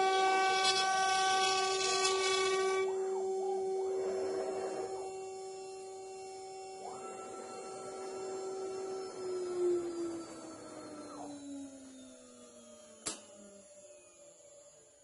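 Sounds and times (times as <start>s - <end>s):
router bit cutting wood: 0.0s - 11.9s
spindle motor high whine: 0.0s - 15.0s.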